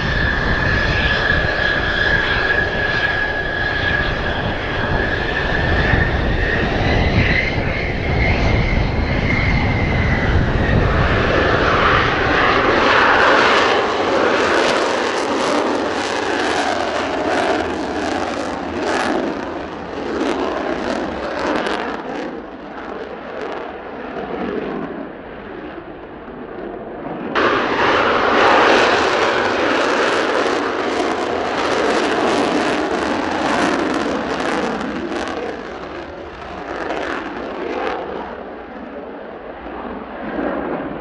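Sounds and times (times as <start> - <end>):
wind noise on microphone: 0.0 - 25.3
loud jet engine rush: 0.0 - 41.0.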